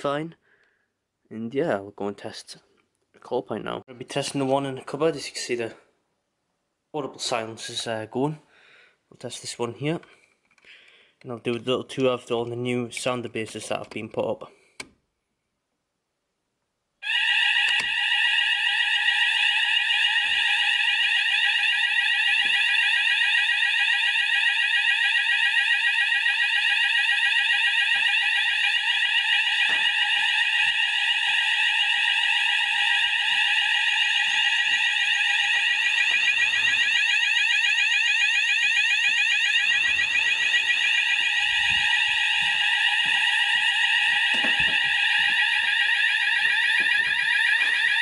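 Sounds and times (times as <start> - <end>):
fire alarm sweeping tone: 17.0 - 48.0
footsteps: 39.6 - 45.8.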